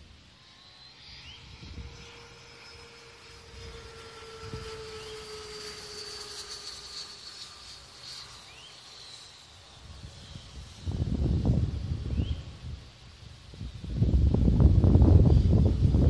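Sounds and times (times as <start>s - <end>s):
faint distant engine drone: 0.0s - 16.0s
high rising chirps: 0.2s - 11.1s.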